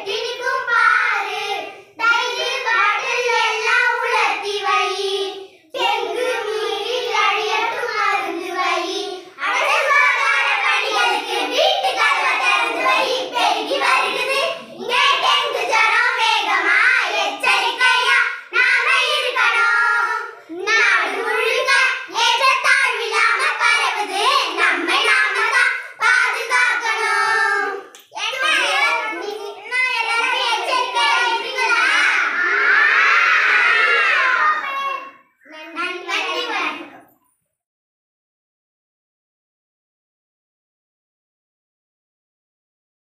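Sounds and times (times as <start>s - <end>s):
girls singing together: 0.0s - 28.0s, 30.0s - 34.6s.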